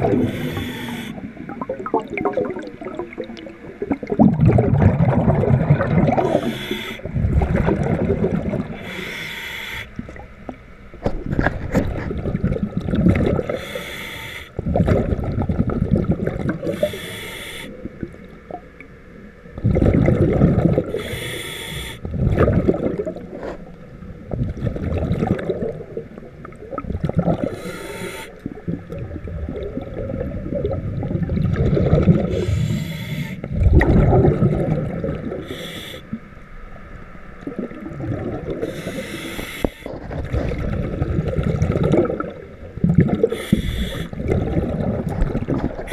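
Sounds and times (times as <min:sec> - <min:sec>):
scuba regulator breathing: 0:00.0 - 0:01.2, 0:06.2 - 0:07.2, 0:08.7 - 0:10.0, 0:13.4 - 0:14.6, 0:16.6 - 0:17.8, 0:20.9 - 0:22.1, 0:27.4 - 0:28.4, 0:32.2 - 0:33.5, 0:35.3 - 0:36.2, 0:38.6 - 0:40.0, 0:43.2 - 0:44.4
exhaust bubbles hissing: 0:00.0 - 0:10.3, 0:11.0 - 0:18.6, 0:19.6 - 0:23.5, 0:24.2 - 0:36.2, 0:37.4 - 0:45.9.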